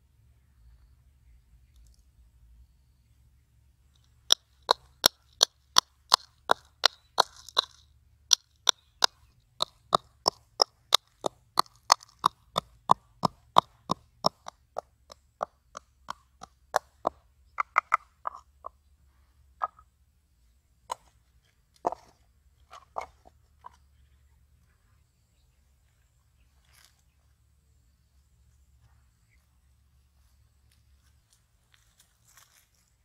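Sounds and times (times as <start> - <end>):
pestle pounding in bowl: 4.3 - 18.5.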